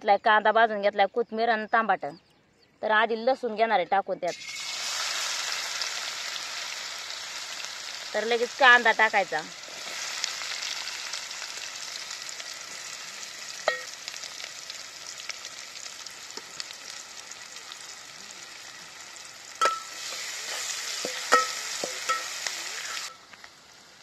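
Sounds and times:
onion and garlic sizzling in oil: 4.3s - 24.0s
metal spatula clinking on pot: 13.6s - 14.0s, 19.6s - 22.4s.

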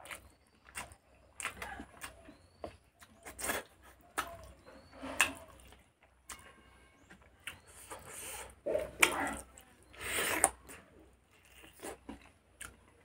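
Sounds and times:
wet chewing and lip smacks: 0.0s - 13.0s.

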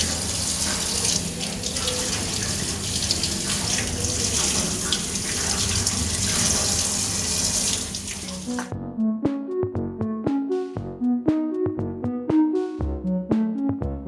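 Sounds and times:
tap water running into sink: 0.0s - 8.7s
water splashing: 0.0s - 8.7s.

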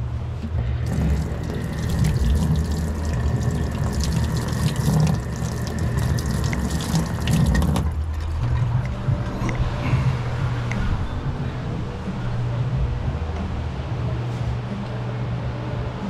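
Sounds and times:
tap water splashing on metal: 0.8s - 8.0s.

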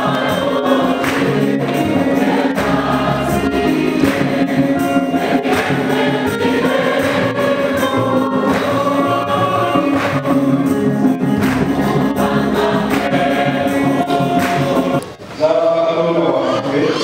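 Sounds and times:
congregation and choir singing a hymn: 0.0s - 17.0s
hand claps: 0.4s - 2.8s, 3.4s - 7.6s, 8.4s - 12.2s, 12.9s - 15.2s.

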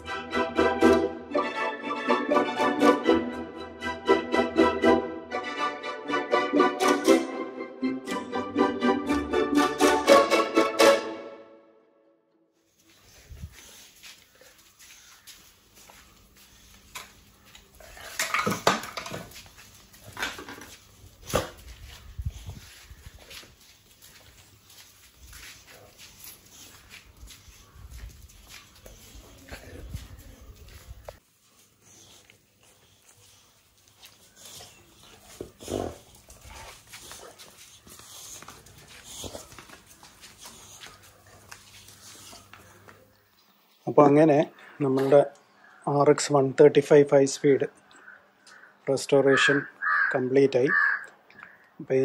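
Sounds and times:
clatter on tiled floor: 18.0s - 21.7s
soft dog noises: 21.2s - 43.2s.

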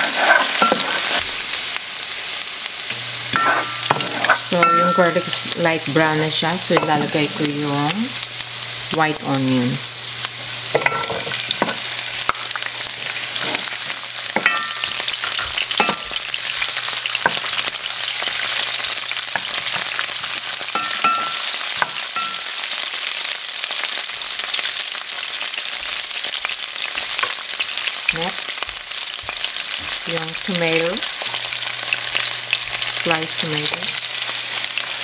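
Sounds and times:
wooden spoon scraping pan: 0.0s - 1.2s, 3.4s - 4.4s
onions sizzling in hot oil: 0.0s - 35.0s.

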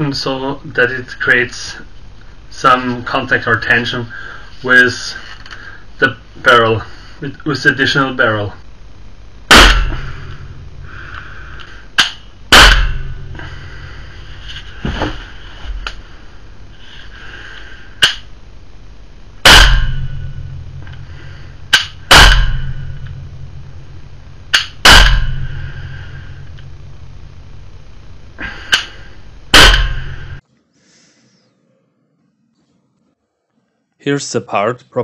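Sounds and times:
air pistol shots: 9.5s - 10.2s, 12.0s - 13.1s, 19.4s - 20.1s, 21.7s - 22.8s, 24.5s - 25.4s, 29.5s - 30.2s
sharp click: 18.0s - 18.3s.

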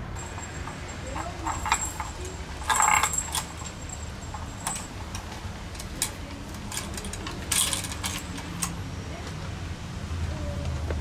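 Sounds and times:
metal bead chain and toy rattling: 0.0s - 8.8s.

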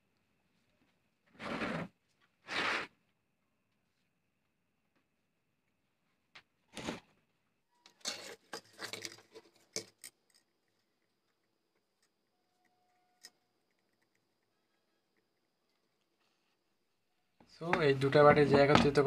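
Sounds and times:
plastic rustling and clattering: 7.9s - 10.5s.

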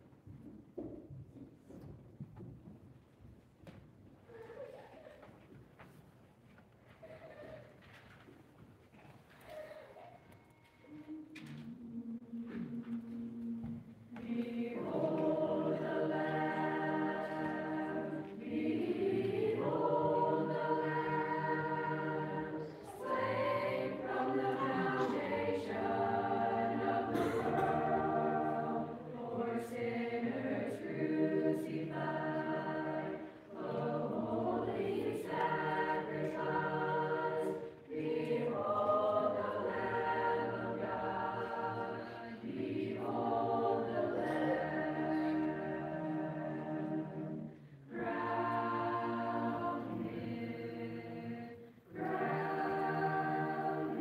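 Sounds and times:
choir breaths: 9.4s - 54.0s
youth choir singing a hymn: 10.9s - 54.0s.

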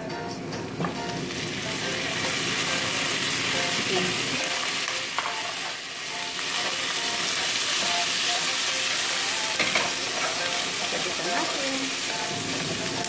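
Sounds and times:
food sizzling in hot oil: 0.7s - 13.0s
wooden spatula knocking on pan: 9.6s - 10.4s.

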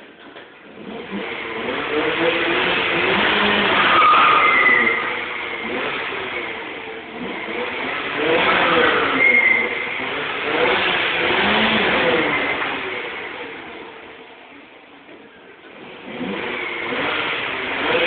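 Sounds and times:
car engine revving hard: 0.6s - 14.2s, 15.7s - 18.0s
tyres squealing: 3.6s - 5.4s, 8.6s - 10.0s.

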